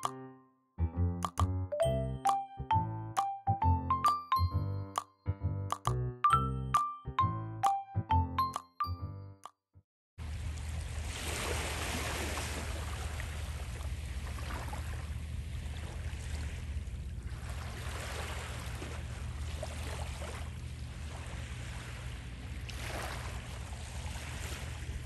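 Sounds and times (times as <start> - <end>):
small waves washing onto beach: 10.2 - 25.0.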